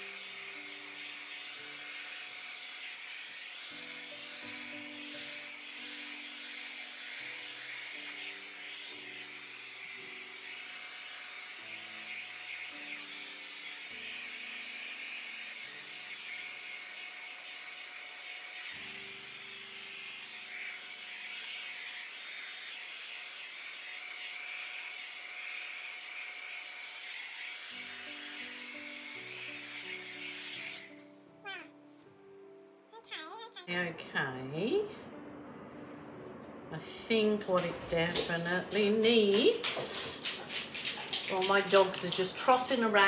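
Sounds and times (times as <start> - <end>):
electric mini blower whirring: 0.0 - 31.0
soft background music: 0.0 - 43.0.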